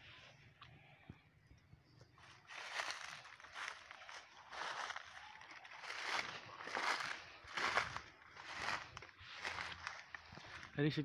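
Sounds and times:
footsteps through dry leaves: 0:02.2 - 0:10.8.

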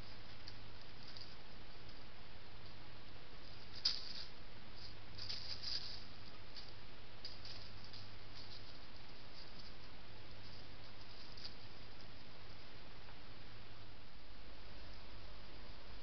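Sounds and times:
camera hiss and hum: 0:00.0 - 0:16.0
dry leaves rustling and crackling: 0:03.4 - 0:12.3.

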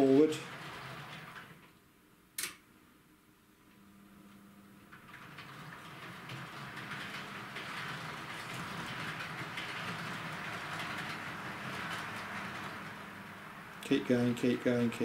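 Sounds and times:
model train whirring on rails: 0:05.1 - 0:15.0.

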